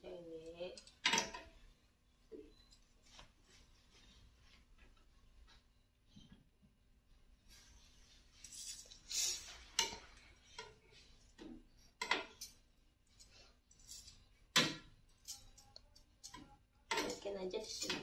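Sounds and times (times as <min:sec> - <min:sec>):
tongs clicking against a pan: 0:15.2 - 0:18.0
tongs scraping a pan: 0:15.2 - 0:18.0.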